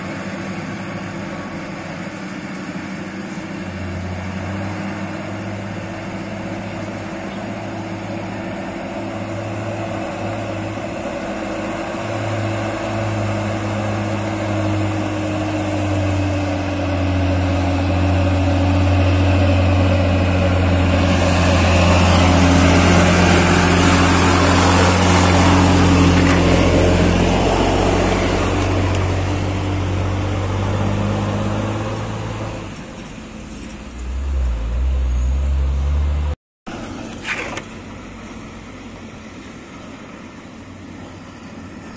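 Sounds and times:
diesel truck engine: 0.0s - 41.9s
low truck engine: 0.0s - 41.9s
tyres on gravel: 36.7s - 38.0s.

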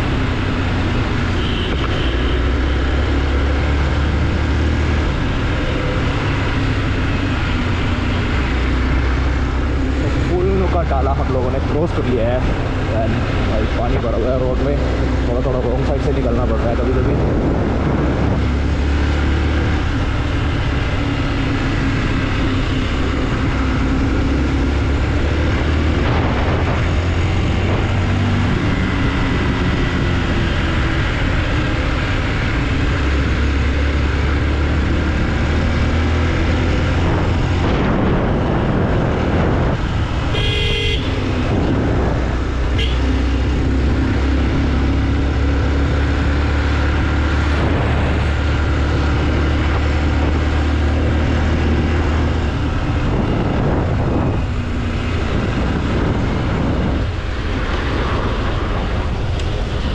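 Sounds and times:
motorcycle engine rumble: 0.0s - 59.9s
horn toots: 1.4s - 2.4s, 40.3s - 41.3s, 42.7s - 43.2s.

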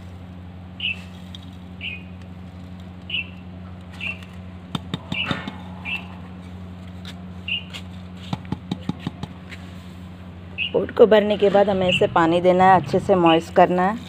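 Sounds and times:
low steady hum: 0.0s - 14.0s
bird chirping: 0.8s - 1.0s, 1.8s - 2.2s, 3.0s - 4.4s, 5.0s - 6.3s, 7.4s - 7.7s, 10.5s - 11.0s.

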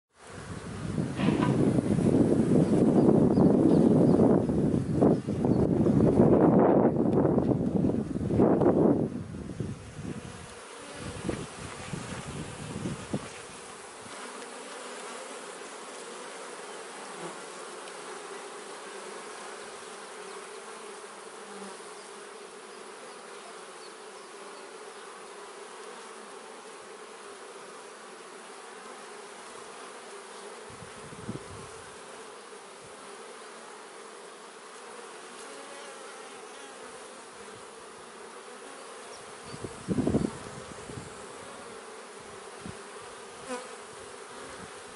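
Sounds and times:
honey bees buzzing: 0.2s - 44.9s.

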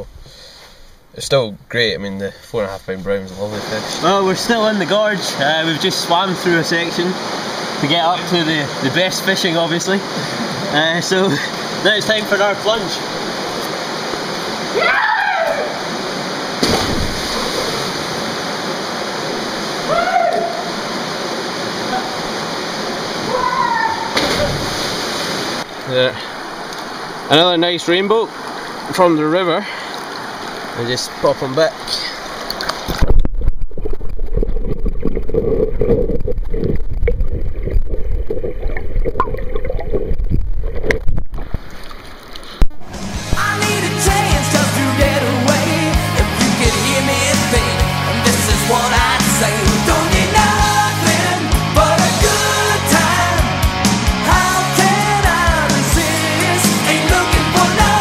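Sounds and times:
river water rushing: 3.4s - 33.2s, 41.4s - 58.0s
loud splash into water: 16.6s - 18.2s, 24.1s - 25.6s.

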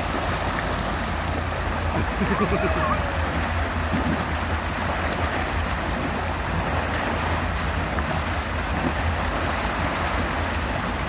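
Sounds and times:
motorboat engine drone: 0.0s - 11.0s
rushing water: 0.0s - 11.0s
wind: 0.0s - 11.0s.

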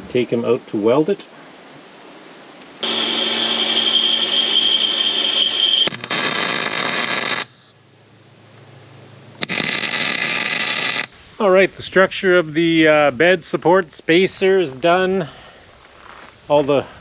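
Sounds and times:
welding arc crackling hiss: 2.8s - 7.7s, 9.4s - 11.9s.

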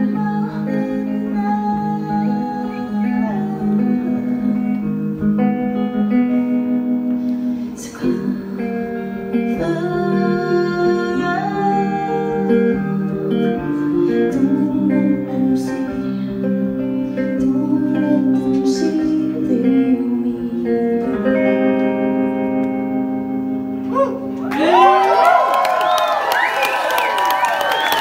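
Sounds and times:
woman singing: 0.0s - 6.4s, 7.6s - 23.0s
clean electric guitar: 0.0s - 28.0s.

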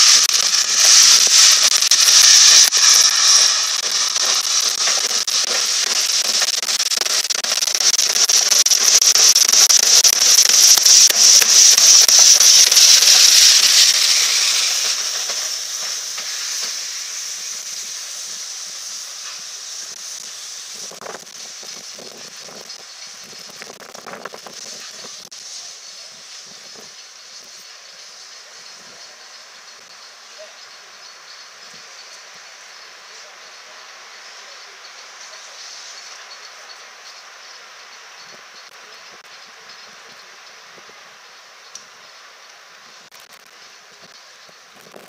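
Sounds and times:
steam hissing from locomotive: 0.0s - 45.0s.

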